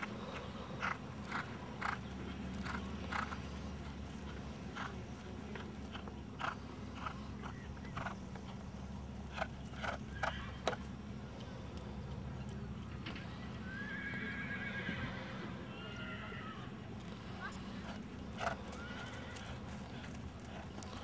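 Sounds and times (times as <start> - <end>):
horse whinnying: 13.7 - 16.5.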